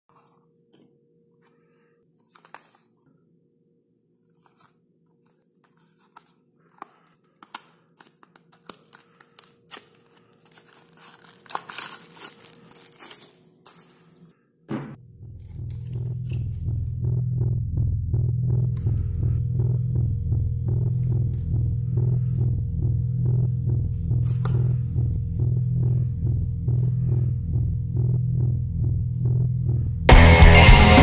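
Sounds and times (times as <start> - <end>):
paper rustling: 2.2 - 3.0, 5.3 - 14.3.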